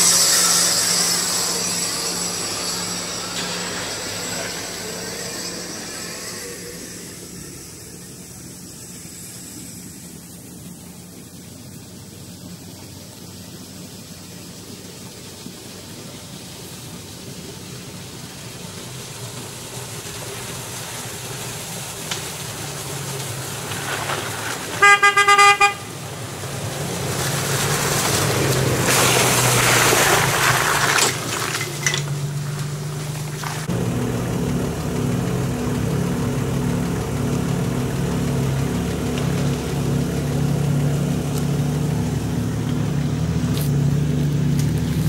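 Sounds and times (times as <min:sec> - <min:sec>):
off-road vehicle engine running: 0:00.0 - 0:45.0
rustling and crunching on track: 0:21.9 - 0:24.8, 0:27.1 - 0:33.7, 0:41.2 - 0:45.0
car horn honk: 0:24.7 - 0:26.0.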